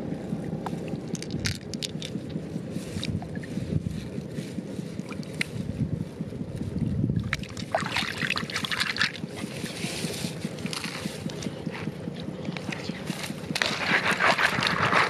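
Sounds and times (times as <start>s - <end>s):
low steady rumble: 0.0s - 15.0s
hands splashing in shallow water: 7.3s - 9.2s.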